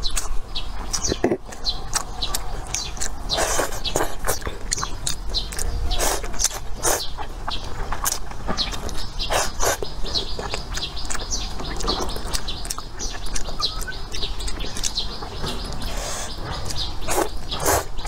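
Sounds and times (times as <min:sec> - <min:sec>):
birds chirping: 0:00.0 - 0:18.0
chewing and mouth sounds: 0:00.0 - 0:18.0
loud noodle slurps: 0:03.3 - 0:04.4, 0:09.3 - 0:09.9, 0:17.1 - 0:18.0.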